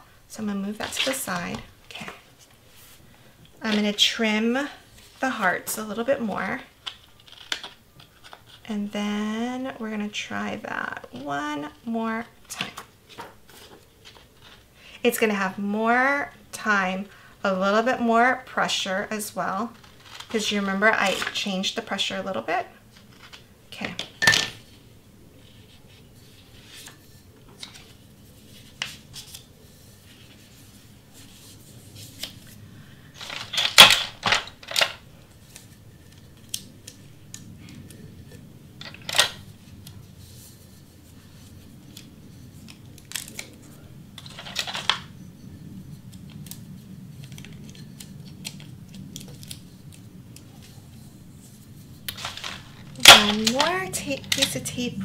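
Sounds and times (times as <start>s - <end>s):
faint steady hum: 0.0s - 55.0s
paper crinkling and rustling: 13.0s - 14.8s, 25.4s - 45.1s, 46.0s - 54.6s.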